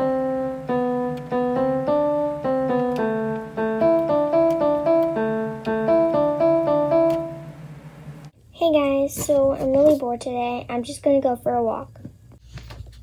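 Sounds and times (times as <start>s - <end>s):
piano melody: 0.0s - 8.3s
steady low tone: 0.0s - 8.3s.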